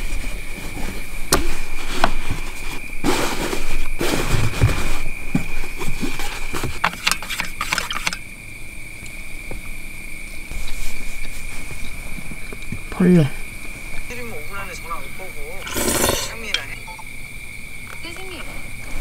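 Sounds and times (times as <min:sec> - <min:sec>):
steady high-pitched tone: 0:14.1 - 0:17.3.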